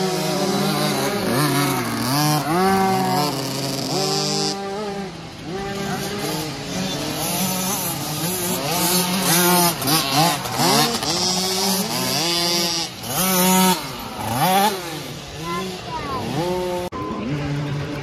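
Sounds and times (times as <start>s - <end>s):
motocross bike engines revving: 0.0s - 18.0s.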